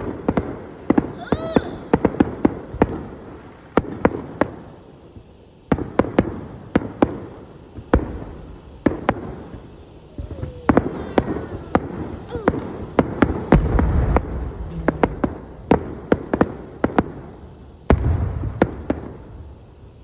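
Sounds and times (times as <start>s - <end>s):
firework shells bursting: 0.0s - 20.0s.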